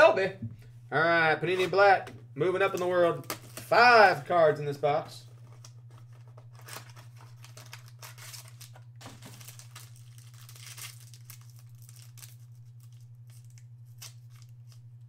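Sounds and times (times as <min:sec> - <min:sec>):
steady low hum: 0:00.0 - 0:15.0
foil wrapper crinkling and tearing: 0:05.2 - 0:15.0.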